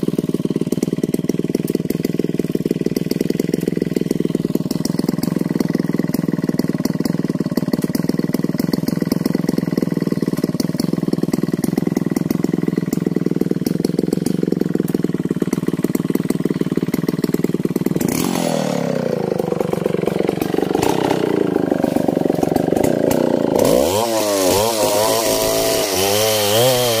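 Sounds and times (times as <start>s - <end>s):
chainsaw cutting wood: 0.0s - 27.0s
chainsaw engine revving: 0.0s - 27.0s.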